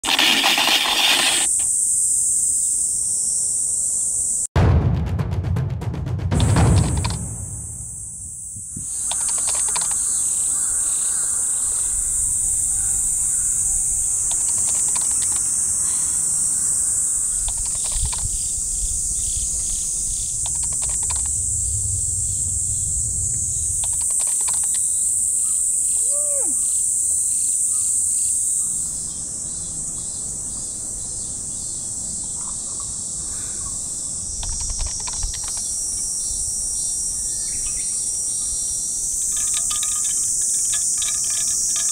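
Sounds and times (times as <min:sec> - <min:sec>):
insects buzzing: 0:00.0 - 0:04.5, 0:06.8 - 0:41.9
falling bird-like call: 0:23.5 - 0:26.8.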